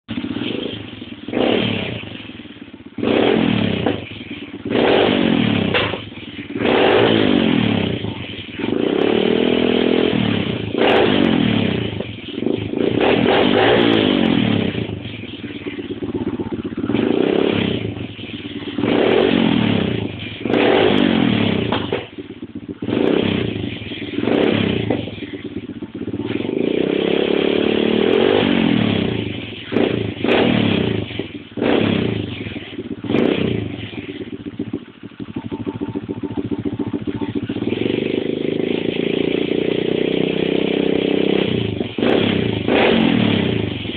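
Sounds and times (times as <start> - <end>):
motorbike engine revving: 0.1 - 43.9.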